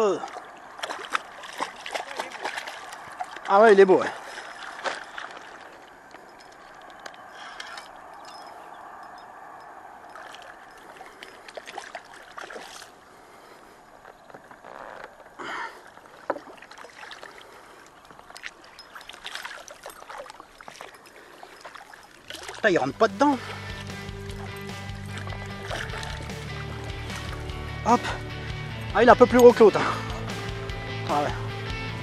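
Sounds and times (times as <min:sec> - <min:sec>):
water sloshing and splashing: 0:00.0 - 0:28.5
small ticks and knocks: 0:16.2 - 0:16.6.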